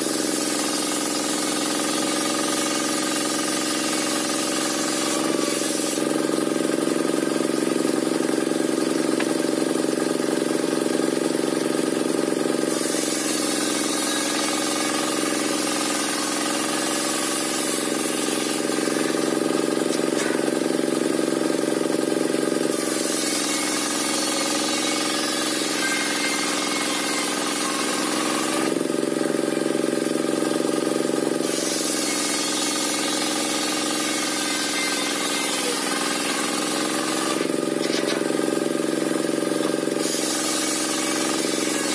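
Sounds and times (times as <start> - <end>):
saw blade ripping log: 4.0 - 6.2, 12.7 - 20.8, 31.4 - 41.9.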